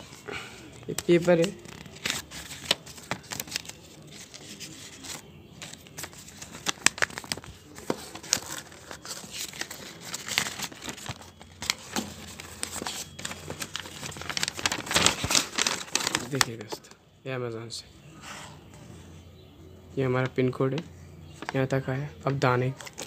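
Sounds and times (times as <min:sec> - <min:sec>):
paper and cardboard crinkling: 0:00.0 - 0:17.0, 0:22.3 - 0:23.0.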